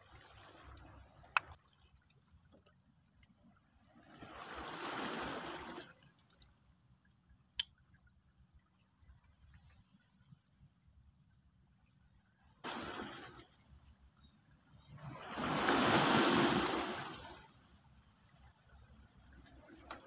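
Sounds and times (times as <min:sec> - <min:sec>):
seawater washing among rocks: 0:04.1 - 0:06.0, 0:12.6 - 0:13.6, 0:15.0 - 0:17.4.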